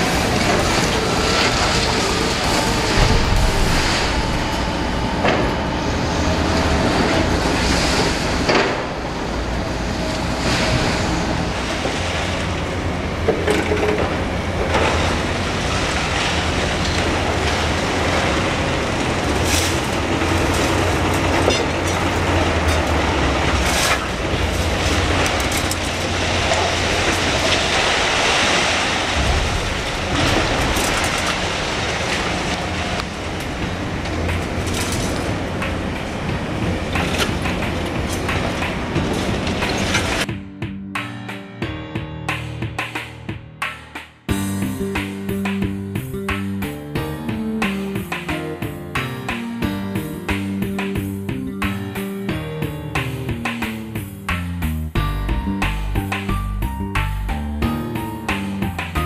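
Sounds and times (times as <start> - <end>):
diesel engines running: 0.0 - 40.4.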